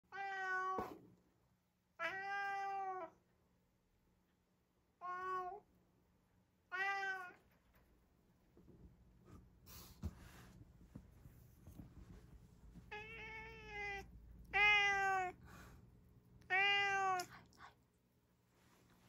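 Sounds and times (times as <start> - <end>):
cat meowing: 0.1 - 1.0, 2.0 - 3.2, 5.0 - 5.6, 6.7 - 7.4, 12.9 - 15.4, 16.4 - 17.3.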